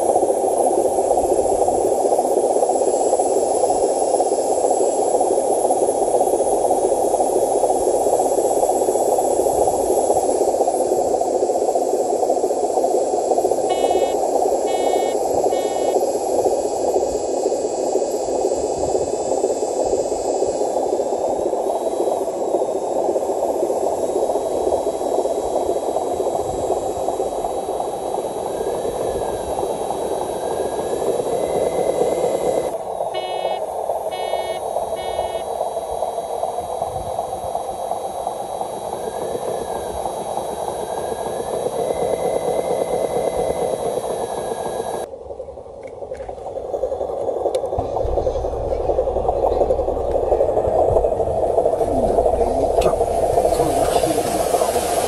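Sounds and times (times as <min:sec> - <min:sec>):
short beeps: 0:13.7 - 0:16.0, 0:33.2 - 0:35.5.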